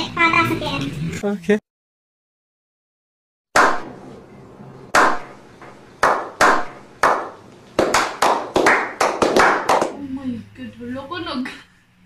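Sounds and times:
hand claps with ringing echo: 5.0s - 5.3s, 6.0s - 10.0s.

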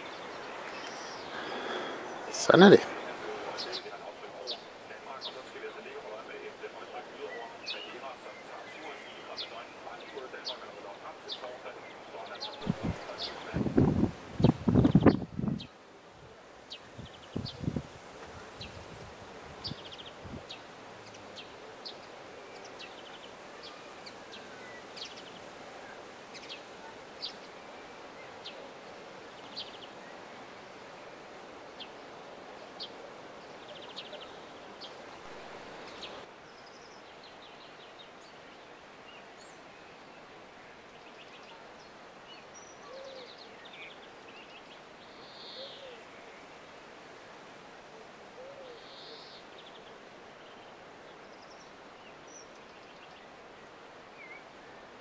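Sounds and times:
small birds chirping: 0.0s - 15.8s, 16.6s - 46.6s
wind in grass and foliage: 0.0s - 55.0s.

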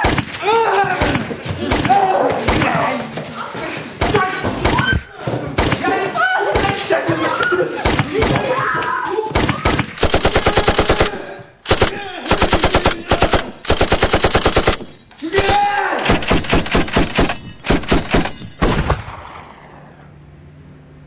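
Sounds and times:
automatic gunfire bursts: 9.4s - 19.2s.

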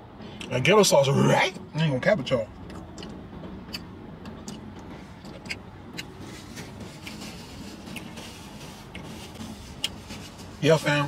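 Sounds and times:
low hum inside car: 0.0s - 11.0s
man chewing with wet mouth clicks: 2.7s - 6.2s.

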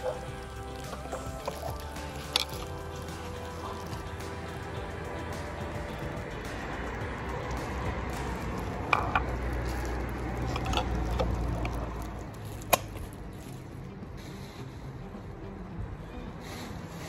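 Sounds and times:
low rumble: 0.0s - 16.4s
soft crinkling: 8.2s - 14.4s.

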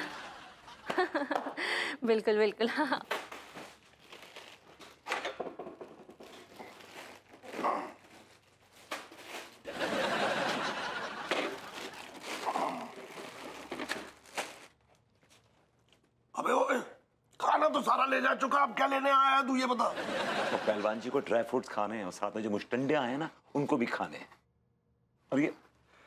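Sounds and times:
plastic bags rustling: 2.8s - 5.1s, 5.8s - 16.1s.

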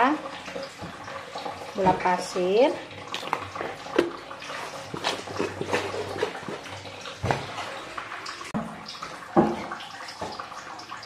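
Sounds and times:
kitchen utensils clicking and knocking: 4.9s - 6.7s.

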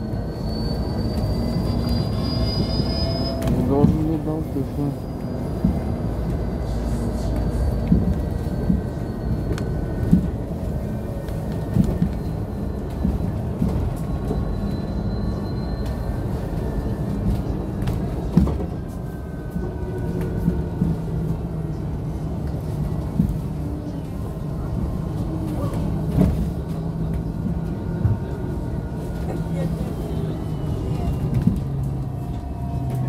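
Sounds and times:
road and tyre rumble: 0.0s - 33.0s.

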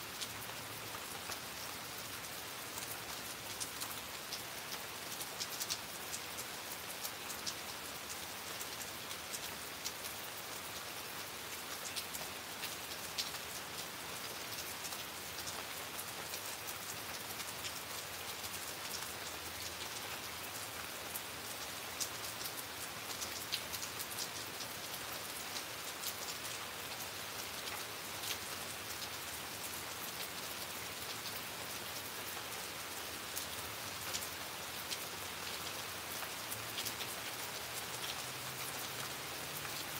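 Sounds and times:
rain falling: 0.0s - 39.9s
raindrops ticking: 0.1s - 39.9s.

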